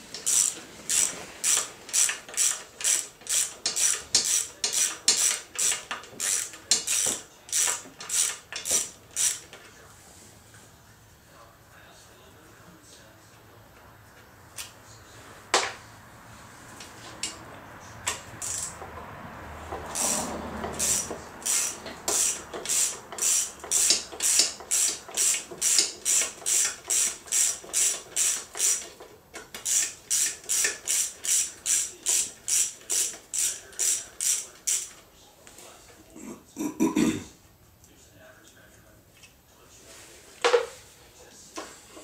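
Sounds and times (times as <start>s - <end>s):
socket ratchet clicking: 0.2s - 9.4s, 18.4s - 18.8s, 19.9s - 28.9s.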